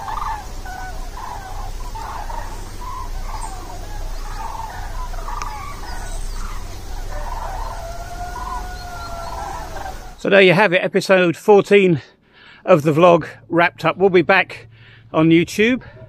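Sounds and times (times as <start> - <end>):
flock of birds calling: 0.0 - 10.3.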